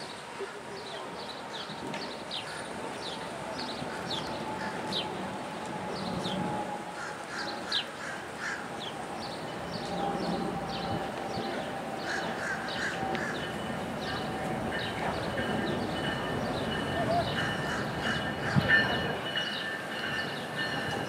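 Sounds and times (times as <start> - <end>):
birds chirping: 5.9 - 21.0.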